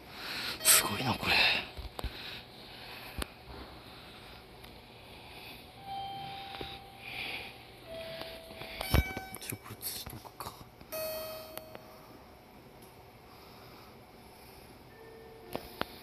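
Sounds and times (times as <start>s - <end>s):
flat electronic beeps: 0.6s - 1.4s, 5.8s - 7.0s, 7.8s - 9.5s.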